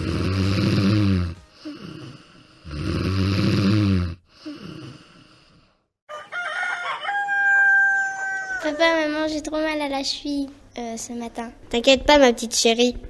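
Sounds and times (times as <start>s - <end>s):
loud snoring: 0.0s - 5.8s
quiet breath: 1.5s - 2.7s, 4.3s - 5.9s
rooster crowing: 6.1s - 9.1s.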